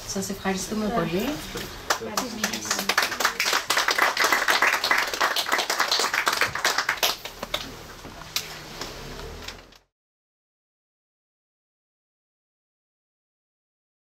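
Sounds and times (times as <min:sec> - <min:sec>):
small audience applauding: 0:01.9 - 0:08.5.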